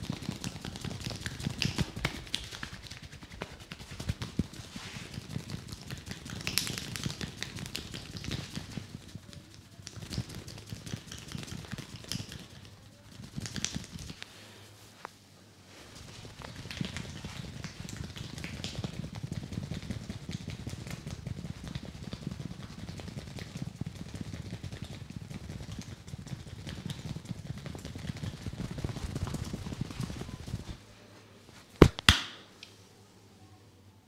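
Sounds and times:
fingers scrubbing damp hair: 0.0s - 14.3s
loud sharp snaps: 31.8s - 32.8s.

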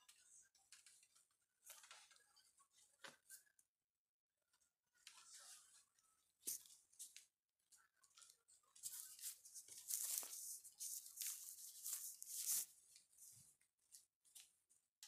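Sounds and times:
rustling and scraping near microphone: 8.8s - 13.5s.

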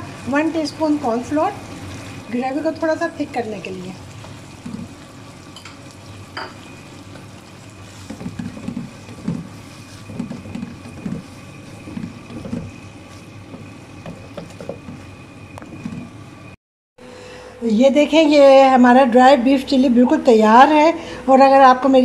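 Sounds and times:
wooden spatula scraping a wok: 7.7s - 16.1s.

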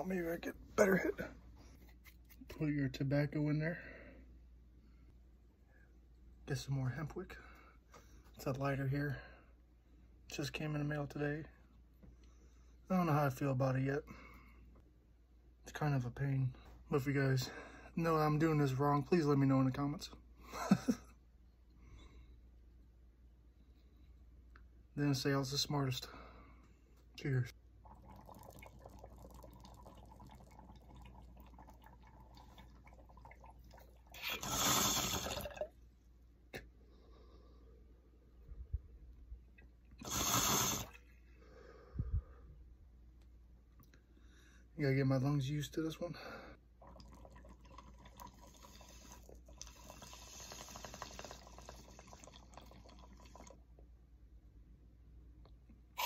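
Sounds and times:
bong water bubbling: 27.8s - 35.8s, 46.8s - 53.6s.

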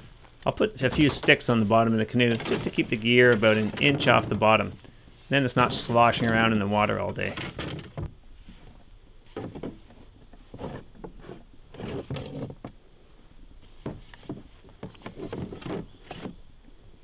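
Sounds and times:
wooden knocks in canoe: 9.4s - 11.2s.

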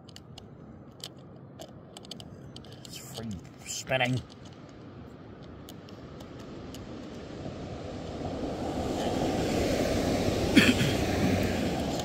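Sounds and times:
passing vehicle engine: 6.4s - 12.0s.

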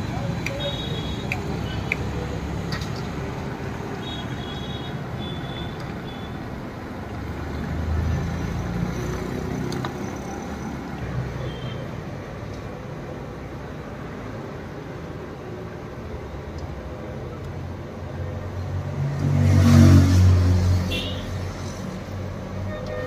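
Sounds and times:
road traffic rumble: 0.0s - 23.0s
vehicle passing: 18.8s - 22.0s.

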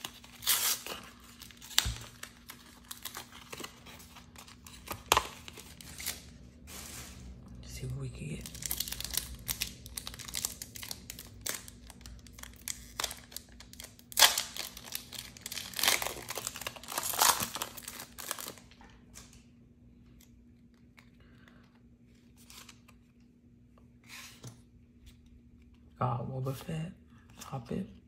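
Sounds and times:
foil pack tearing and crinkling: 0.0s - 6.3s, 8.4s - 18.7s.

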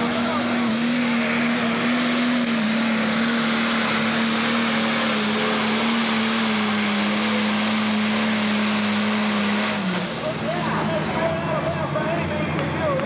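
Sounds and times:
diesel engine under load: 0.0s - 13.0s.

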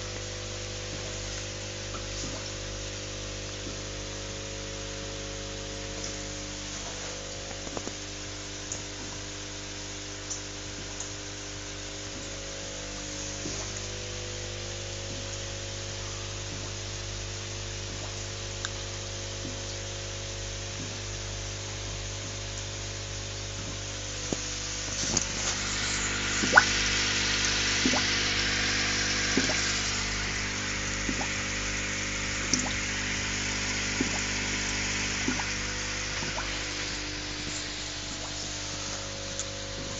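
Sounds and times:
aquarium air pump buzzing: 0.0s - 39.9s
water splashing: 24.4s - 39.9s.

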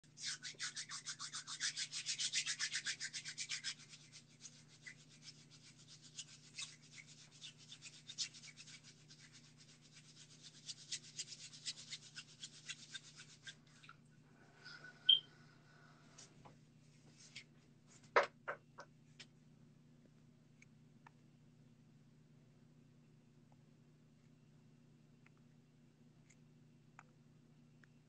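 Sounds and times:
rapid scratching strokes: 0.0s - 13.6s
faint steady hum: 0.0s - 28.0s.

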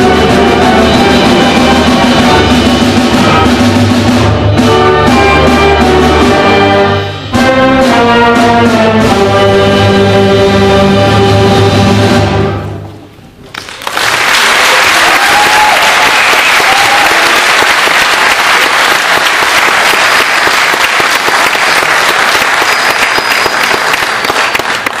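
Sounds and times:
brass band chord: 0.0s - 13.0s
audience applause: 13.5s - 25.0s.

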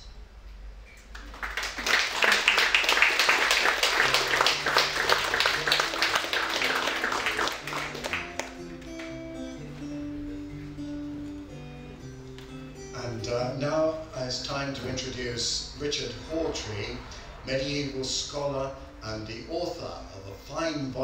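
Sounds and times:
audience applauding: 1.0s - 9.2s
acoustic guitar picked notes: 3.4s - 21.0s.

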